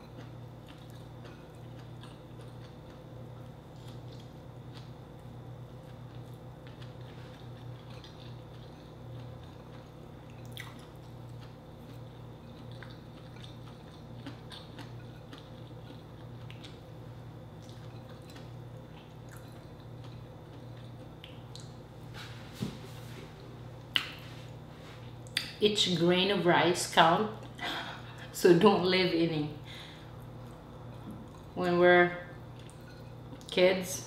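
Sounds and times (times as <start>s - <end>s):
soft chewing: 0.0s - 25.6s, 29.7s - 31.7s, 32.3s - 33.6s
steady low hum: 0.0s - 34.0s
lip smacks: 21.2s - 21.8s, 23.9s - 24.2s.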